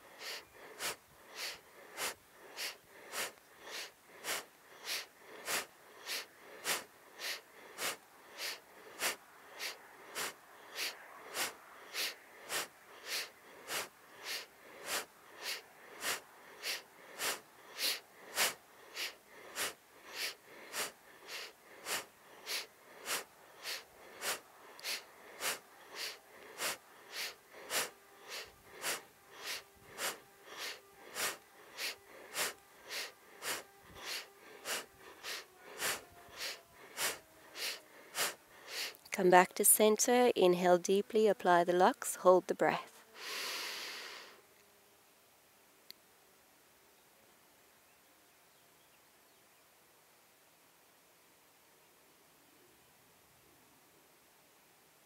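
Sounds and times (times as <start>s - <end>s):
woman breathing quickly: 0.0s - 39.2s, 43.0s - 44.5s.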